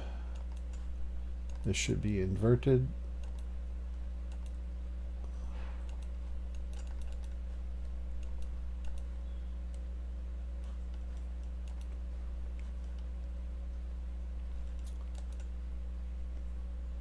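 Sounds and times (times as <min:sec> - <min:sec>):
low electrical hum: 0:00.0 - 0:17.0
faint mouse clicks: 0:05.2 - 0:09.1.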